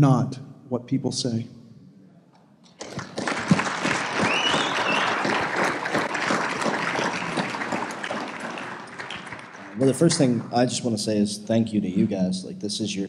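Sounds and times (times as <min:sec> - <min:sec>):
audience applause: 0:02.8 - 0:10.7.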